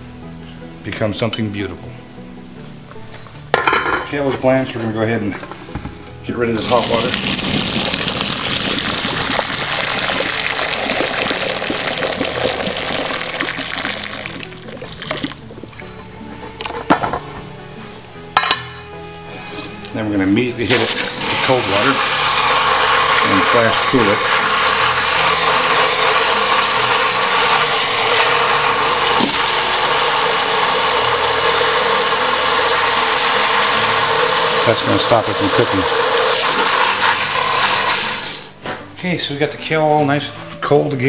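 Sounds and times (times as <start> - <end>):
water pouring into a sink: 6.6 - 15.4, 20.7 - 38.5.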